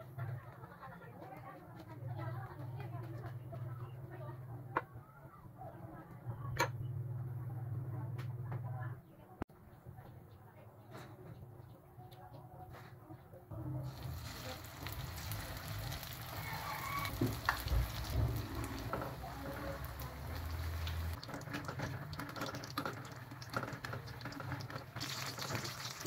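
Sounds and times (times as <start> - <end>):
spring rolls sizzling in hot oil: 13.8 - 26.0.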